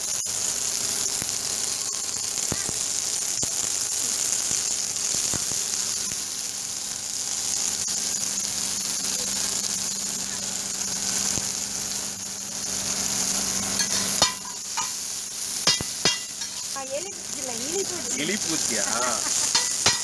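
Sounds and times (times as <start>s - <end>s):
crabs sizzling in oil: 0.0s - 20.0s
spattering oil pops: 15.6s - 16.8s, 19.3s - 20.0s.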